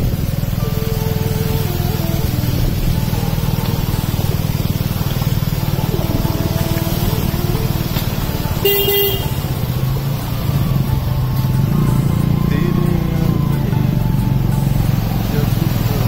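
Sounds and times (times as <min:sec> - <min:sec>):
small motorcycle engine running: 0:00.0 - 0:16.0
horn beep: 0:05.9 - 0:14.7.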